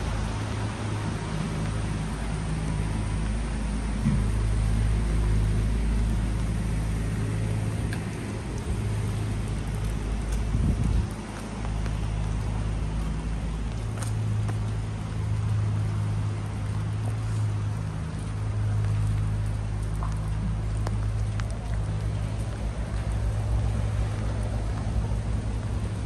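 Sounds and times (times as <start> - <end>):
low mechanical hum: 0.0 - 26.0
rain hissing on street: 0.0 - 26.0
light ticks: 7.8 - 8.7, 9.4 - 26.0.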